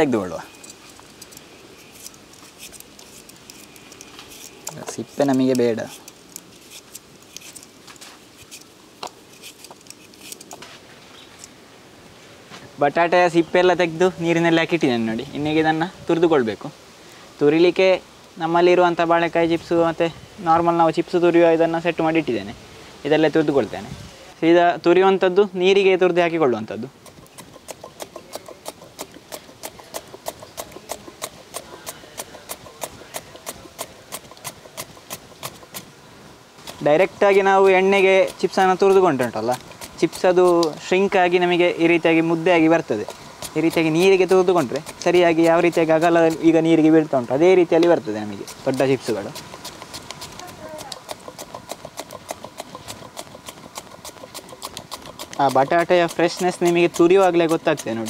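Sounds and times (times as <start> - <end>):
peeler scraping potato: 0.5 - 10.6, 27.0 - 35.9, 36.6 - 41.1, 41.8 - 46.8, 48.2 - 58.0.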